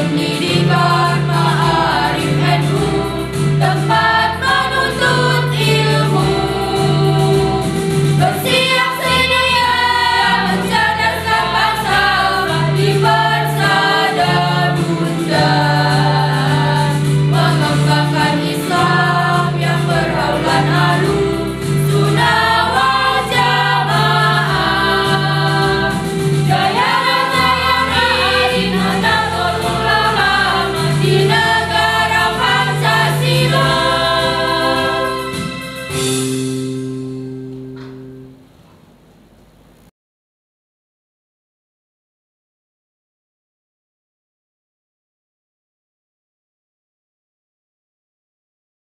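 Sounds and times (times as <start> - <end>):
choir singing a march: 0.0 - 36.2.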